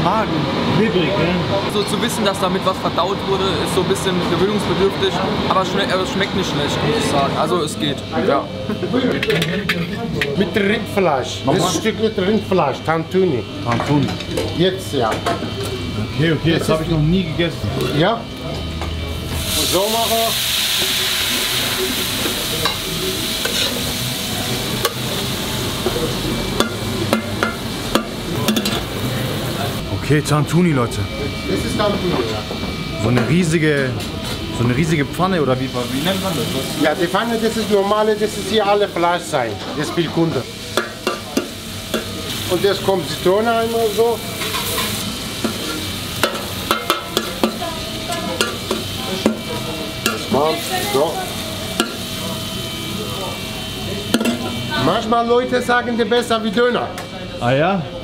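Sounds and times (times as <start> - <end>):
oil sizzling in a pan: 19.2 - 29.8, 35.8 - 55.0
metal spoon scraping a pan: 23.4 - 23.8.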